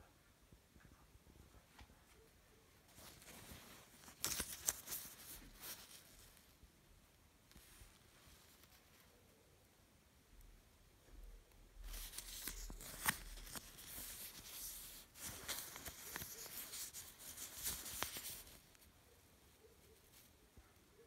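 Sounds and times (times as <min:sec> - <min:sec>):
fingers rustling a cotton shirt: 0:01.7 - 0:06.6, 0:07.4 - 0:09.2, 0:11.8 - 0:20.4.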